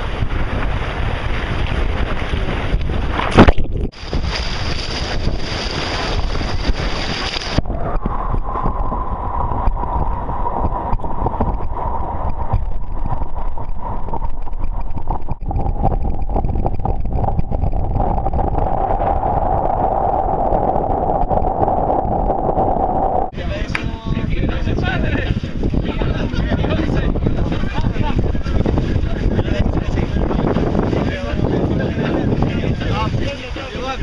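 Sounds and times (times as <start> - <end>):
water rushing: 0.0 - 34.0
wind buffeting microphone: 0.0 - 34.0
steady whine sinking in pitch: 7.6 - 23.3.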